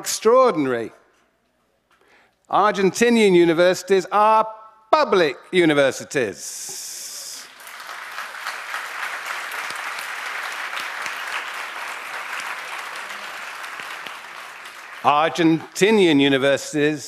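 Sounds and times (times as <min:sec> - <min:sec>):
audience applauding: 0:07.4 - 0:16.2.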